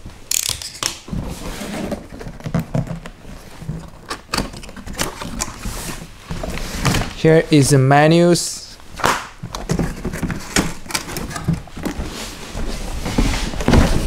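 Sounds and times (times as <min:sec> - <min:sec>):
cardboard scraping and rustling: 0:01.1 - 0:07.2, 0:09.6 - 0:14.0.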